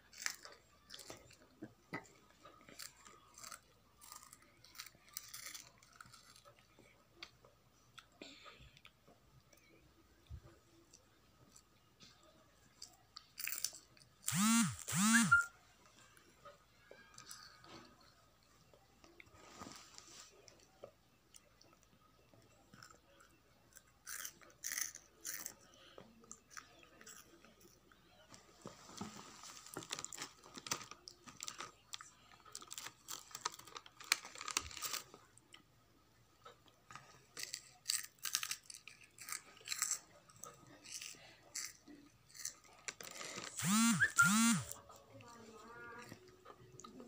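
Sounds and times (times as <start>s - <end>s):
child crunching snacks: 0.0s - 6.9s, 12.8s - 15.4s, 17.0s - 18.1s, 22.4s - 27.9s, 29.4s - 35.4s, 36.9s - 44.8s.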